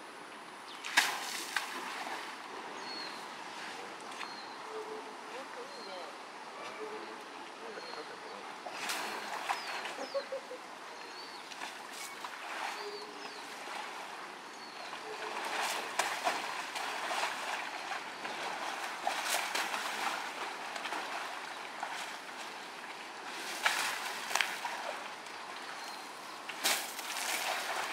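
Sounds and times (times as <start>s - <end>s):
mud splashing and sloshing: 0.8s - 2.4s, 8.6s - 10.2s, 11.5s - 27.9s
faint bird chirps: 4.1s - 13.8s.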